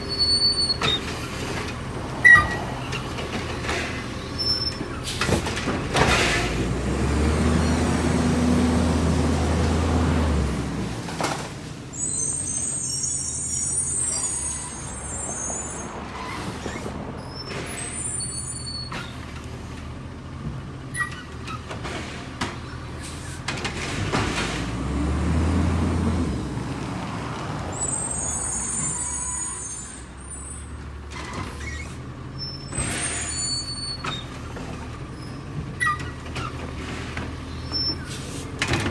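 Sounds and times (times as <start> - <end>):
garbage truck engine revving: 5.3 - 10.9, 23.7 - 27.2.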